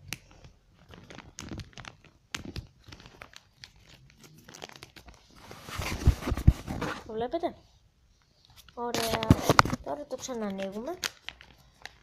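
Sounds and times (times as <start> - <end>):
paper rustling and crinkling: 0.0 - 7.2, 8.4 - 12.0.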